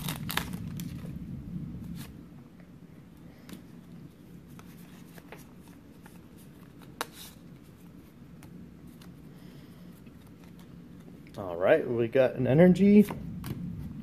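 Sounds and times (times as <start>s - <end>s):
trading cards flicking and rustling: 0.0s - 1.2s, 3.4s - 9.3s, 9.9s - 11.4s
low steady hum: 0.0s - 14.0s.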